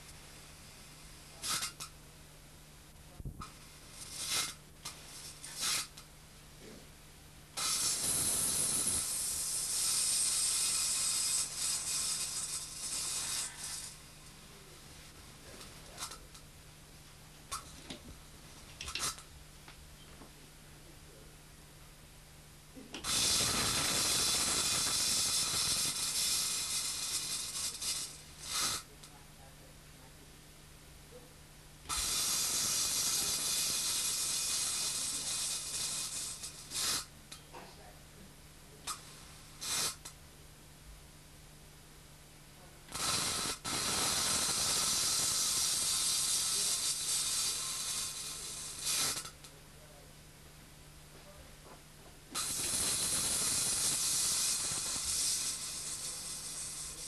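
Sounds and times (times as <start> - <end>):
spark discharge crackling hiss: 0.0 - 1.9, 3.2 - 6.1, 7.6 - 14.2, 15.5 - 16.4, 18.8 - 19.3, 22.8 - 29.2, 31.9 - 37.1, 38.9 - 40.2, 42.9 - 49.5, 52.3 - 57.0.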